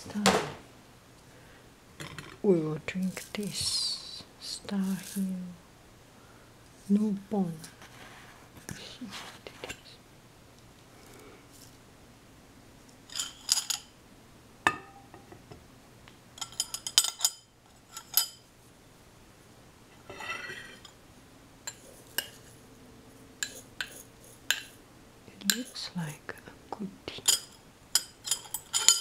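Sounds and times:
plastic spoons clinking on ceramic: 27.2 - 29.0.

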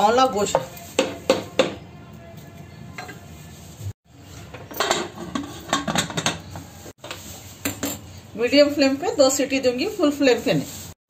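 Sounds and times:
metal pot lid clanking: 4.5 - 6.5.

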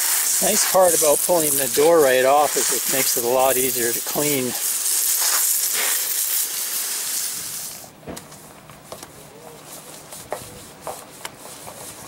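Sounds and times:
brush scrubbing a frame: 0.0 - 5.9, 9.2 - 12.0
garden hose spraying water: 0.0 - 7.9.

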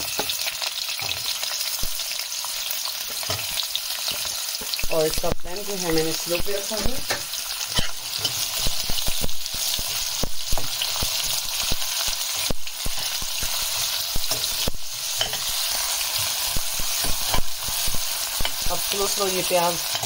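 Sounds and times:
onions sizzling in hot oil: 0.0 - 20.0
steel spoon scraping pan: 5.8 - 20.0.

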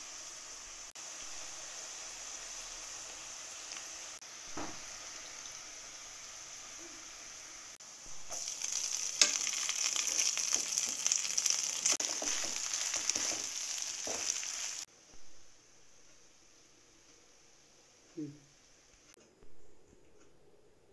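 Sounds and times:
sizzling in a frying pan: 0.0 - 14.9
spoon scraping a pan: 11.8 - 14.8.

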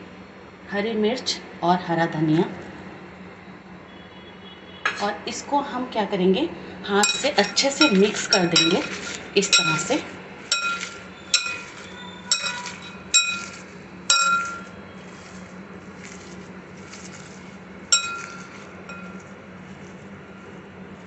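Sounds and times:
steady low hum: 5.1 - 21.0
glass bowl clinking: 7.0 - 14.8, 17.9 - 19.3.

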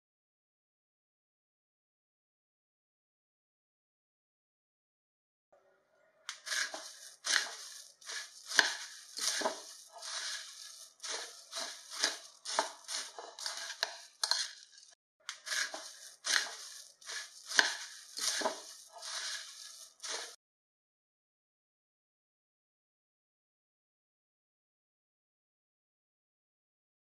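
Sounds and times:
spatula stirring food in bowl: 6.3 - 20.4.

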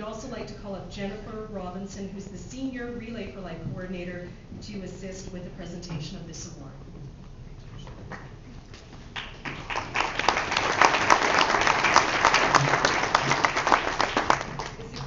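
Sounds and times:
audience applauding: 9.1 - 15.0.

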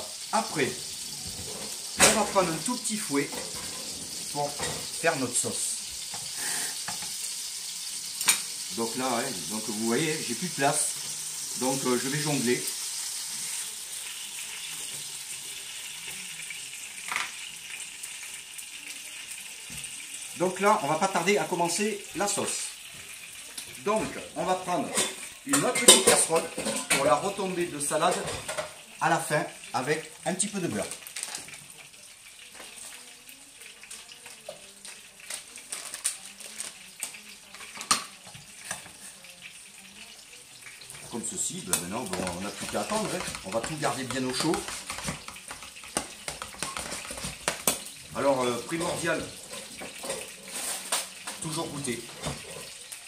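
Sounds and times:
tomatoes sizzling in oil: 0.0 - 53.0
kitchen utensils clinking: 0.6 - 5.5, 23.6 - 28.8, 35.2 - 39.0, 40.8 - 52.9.

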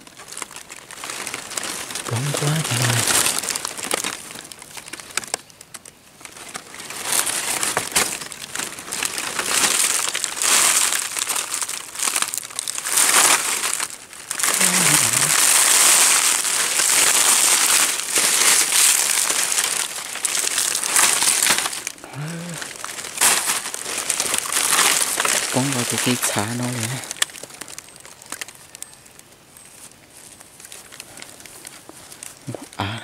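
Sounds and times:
dry leaves crunching and rustling: 0.0 - 32.8.

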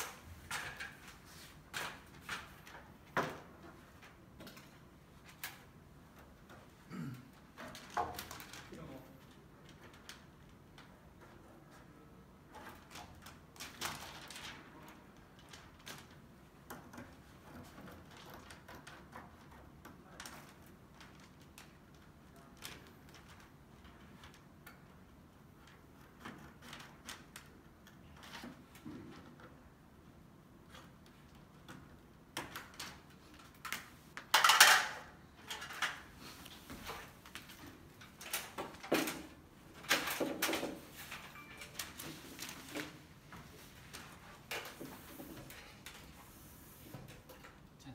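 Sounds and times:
metal hardware clicks and clatters: 32.4 - 36.1.

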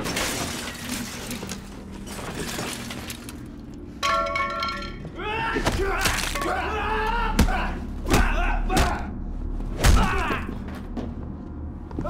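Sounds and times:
men grunting and yelling: 5.2 - 9.2.

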